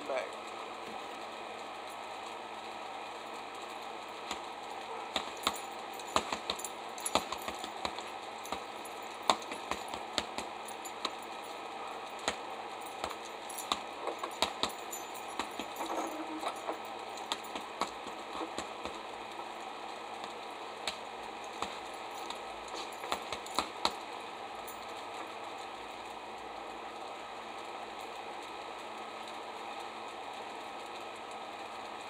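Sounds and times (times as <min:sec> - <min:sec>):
punches slapping a heavy bag: 0:05.1 - 0:11.2, 0:13.0 - 0:14.8, 0:15.4 - 0:15.8, 0:17.3 - 0:19.0, 0:21.6 - 0:24.0
chain and keys jingling: 0:05.2 - 0:11.6, 0:12.8 - 0:18.6, 0:21.4 - 0:23.9.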